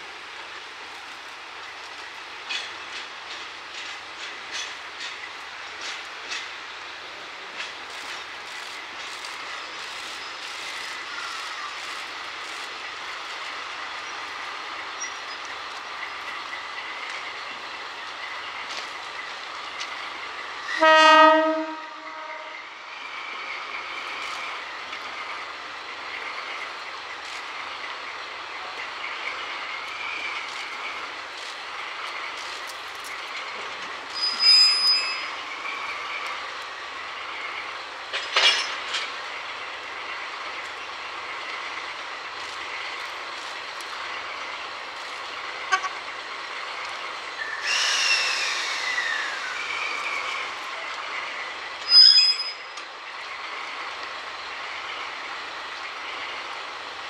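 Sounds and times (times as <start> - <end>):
diesel locomotives running: 0.0 - 57.0
wheel squeal: 34.1 - 36.2, 47.4 - 50.5, 51.8 - 52.8.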